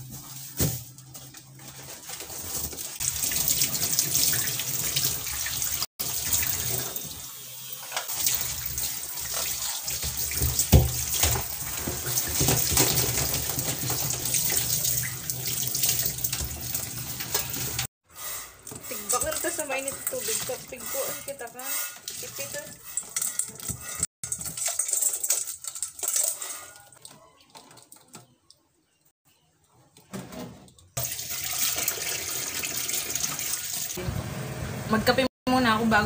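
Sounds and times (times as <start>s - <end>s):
tap water running into metal sink: 3.0s - 17.9s, 31.0s - 34.0s
hands rinsing seafood: 22.0s - 28.2s.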